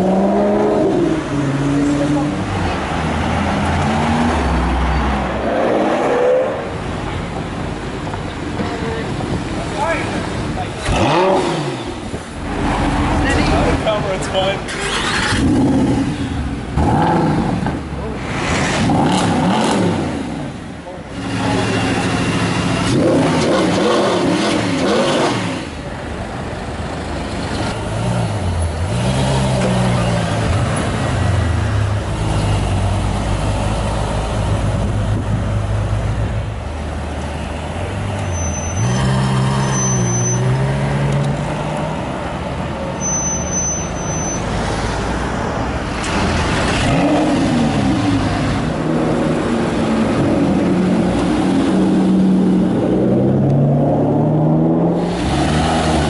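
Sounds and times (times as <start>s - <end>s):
car engines revving and accelerating: 0.0s - 56.0s
short high electronic beeps: 43.0s - 44.4s.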